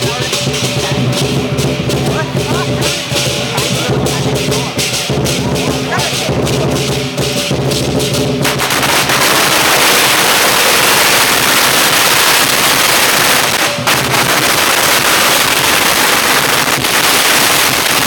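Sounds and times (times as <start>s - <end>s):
drumming: 0.0s - 18.0s
firecrackers crackling: 0.0s - 18.0s.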